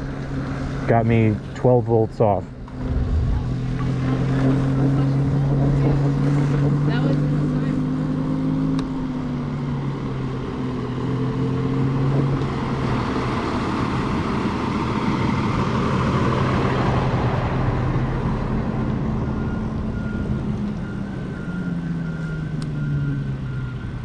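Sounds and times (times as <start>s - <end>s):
truck driving past: 2.4s - 24.0s
wind noise: 2.7s - 6.0s.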